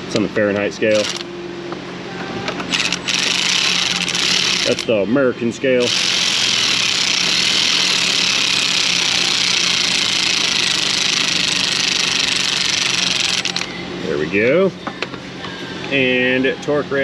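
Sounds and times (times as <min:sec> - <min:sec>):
power ratchet hissing: 0:00.9 - 0:01.3, 0:02.7 - 0:05.0, 0:05.8 - 0:13.7.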